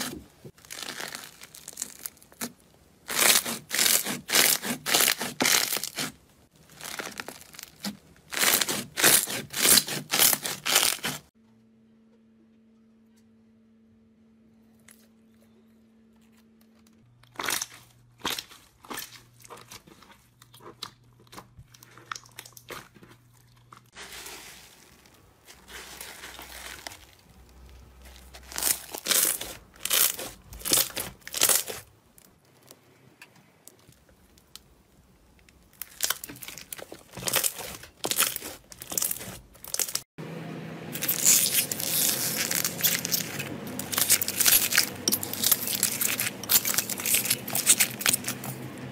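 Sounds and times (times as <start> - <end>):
crunchy crackling of foam slime: 0.0 - 11.4, 21.8 - 32.7, 33.6 - 40.1, 41.0 - 48.7.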